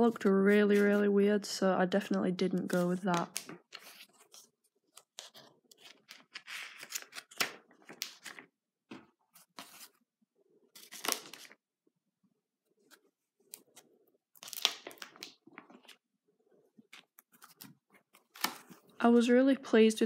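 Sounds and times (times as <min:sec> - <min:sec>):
paper pages rustling: 0:02.6 - 0:10.0, 0:10.7 - 0:11.6, 0:16.7 - 0:19.0.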